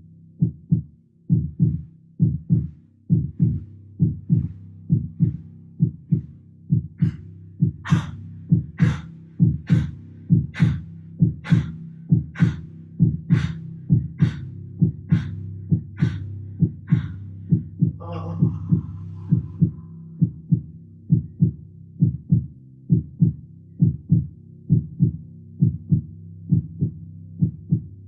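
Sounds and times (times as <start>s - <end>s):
deep drum pulse: 0.4s - 27.9s
low drone: 7.0s - 20.2s.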